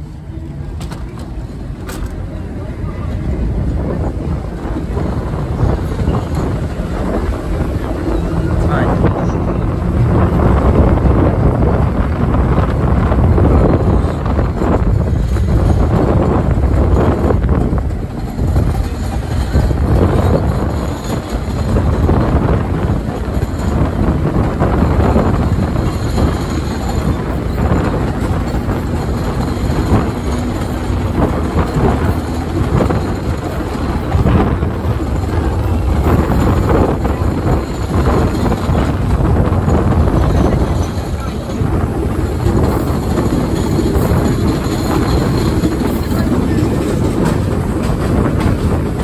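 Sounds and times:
subway train rumble: 0.0 - 49.0
wheel clatter: 13.7 - 49.0.

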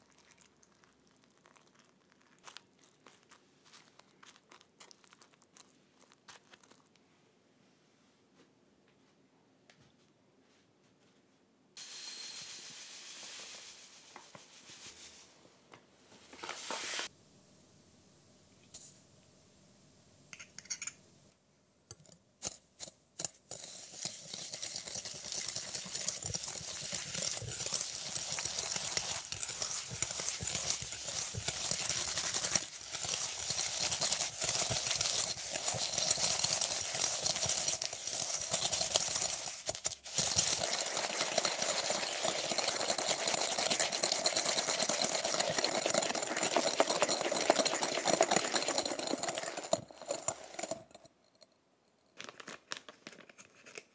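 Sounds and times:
whisk scraping against glass bowl: 22.4 - 51.1.

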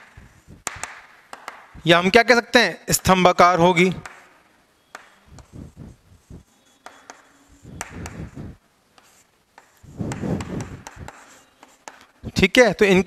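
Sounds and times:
chalk scratching on chalkboard: 4.9 - 12.4.

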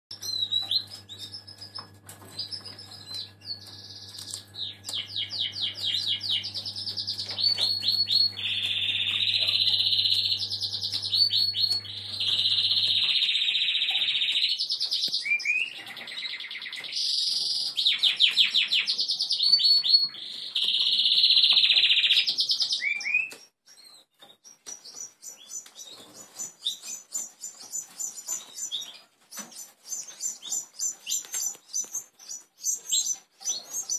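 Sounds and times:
canary singing trills: 0.1 - 33.9.

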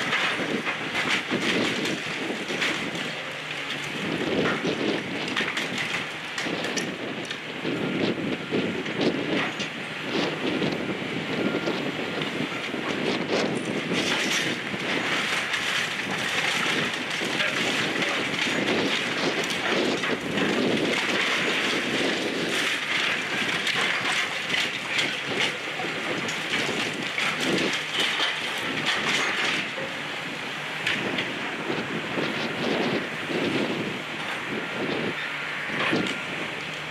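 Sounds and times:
brick wall cracking and clattering: 0.0 - 7.4, 12.7 - 30.0
excavator grapple tearing wall: 0.0 - 30.0.

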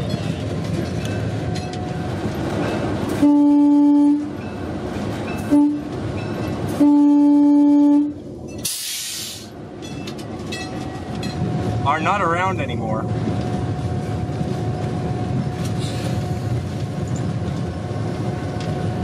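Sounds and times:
locomotive rumbling along track: 0.0 - 19.0
locomotive horn blasts: 3.1 - 4.4, 5.4 - 6.0, 6.7 - 8.2
short hiss: 8.6 - 9.5.

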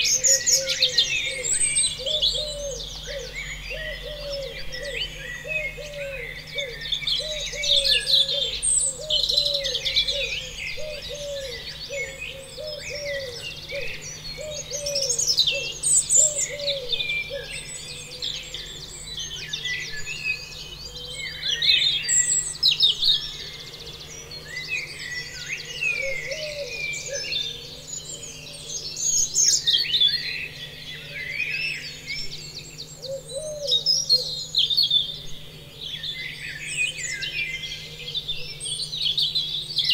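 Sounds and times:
birds singing and chirping: 0.0 - 39.9
lower repeated bird call: 0.0 - 39.9.

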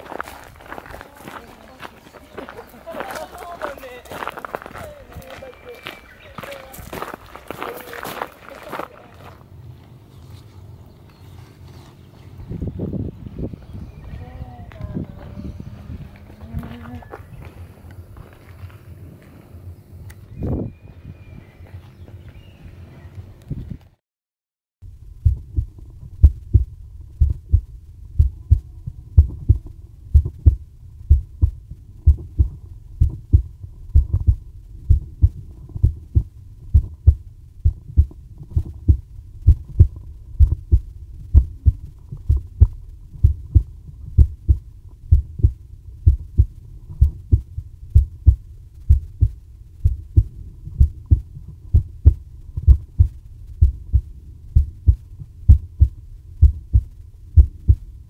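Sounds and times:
heartbeat thumps: 24.9 - 58.0.

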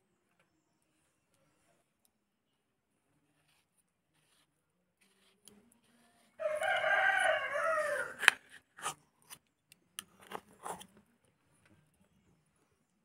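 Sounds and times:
rooster crowing: 6.4 - 8.3.

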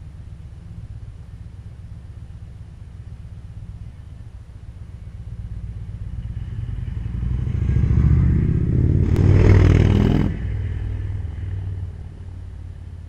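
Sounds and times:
motorcycle accelerating past: 5.6 - 12.4.

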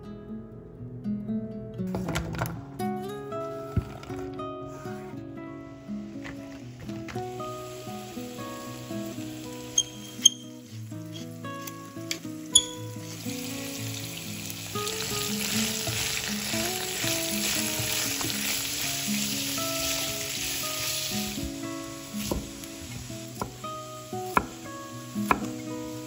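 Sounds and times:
light background music: 1.9 - 26.0
food sizzling in hot oil: 7.2 - 26.0.

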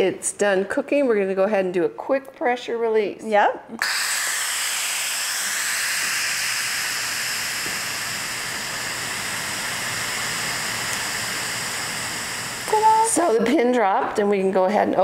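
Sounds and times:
pressure cooker steam hiss: 3.8 - 13.4.

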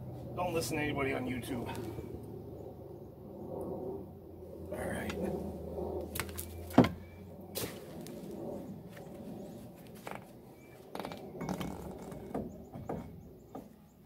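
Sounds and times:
metal clanks and knocks: 11.0 - 13.8.

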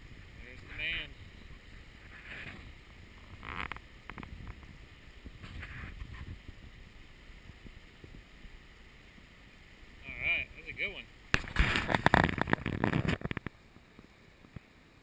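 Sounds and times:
wind buffeting microphone: 0.0 - 8.4
stream running over rocks: 0.0 - 15.0.

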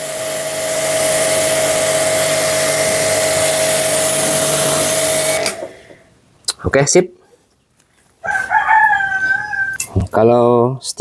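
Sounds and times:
hissing water spray: 0.0 - 5.7
jet cleaner motor hum: 0.0 - 5.8.

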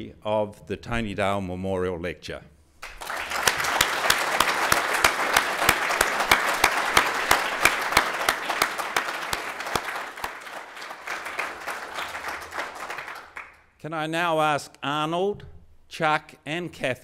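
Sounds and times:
audience applauding: 2.8 - 13.6
sharp close hand claps: 2.8 - 13.6.

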